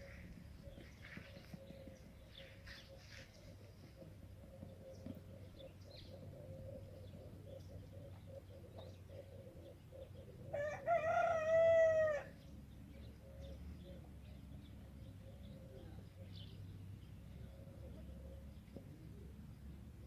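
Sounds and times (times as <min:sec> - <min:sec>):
rooster crowing: 0:10.5 - 0:12.3.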